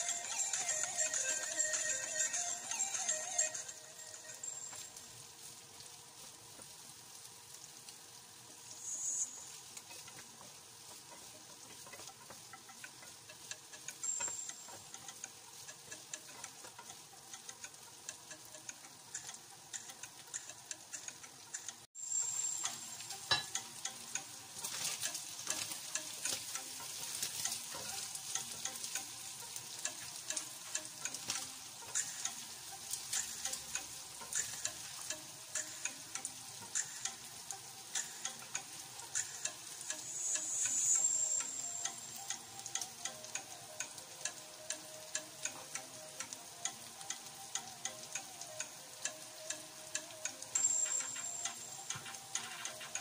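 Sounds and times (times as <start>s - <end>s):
food sizzling in a pan: 0.0s - 53.0s
wooden spatulas clicking and scraping: 9.5s - 21.9s, 22.6s - 40.7s.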